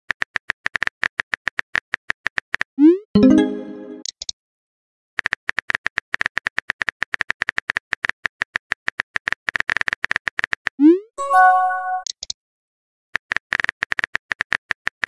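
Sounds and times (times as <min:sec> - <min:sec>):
pitched message tone: 0:03.2 - 0:04.0, 0:11.2 - 0:12.1.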